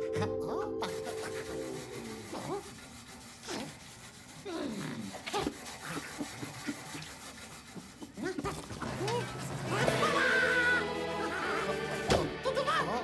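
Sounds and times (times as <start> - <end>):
background music: 0.0 - 2.3, 8.8 - 13.0.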